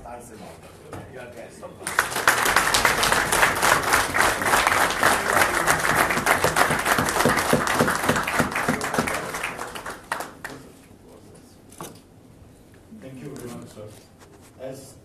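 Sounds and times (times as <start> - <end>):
audience applauding: 1.8 - 10.7.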